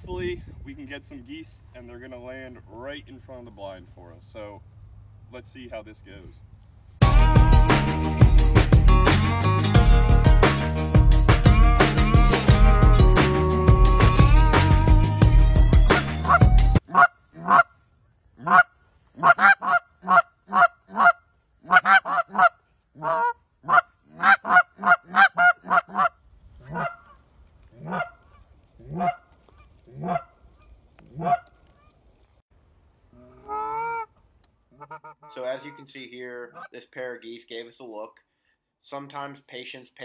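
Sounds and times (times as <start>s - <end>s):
music: 7.0s - 16.8s
goose call honks: 16.0s - 17.7s, 18.4s - 27.1s, 27.8s - 29.3s, 29.9s - 31.5s, 33.2s - 34.1s, 34.7s - 35.9s.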